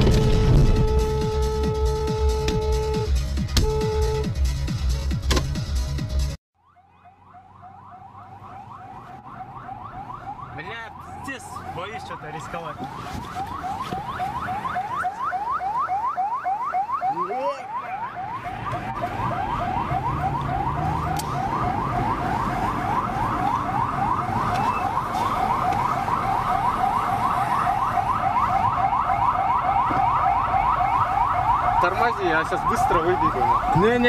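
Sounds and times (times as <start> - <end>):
electronic siren sweeping: 6.6 - 34.0
vehicle rumble: 18.1 - 34.0.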